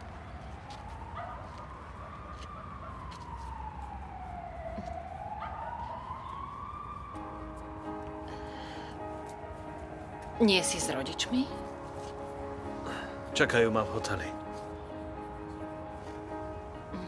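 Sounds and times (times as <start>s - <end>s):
emergency vehicle siren wailing: 0.0s - 11.6s.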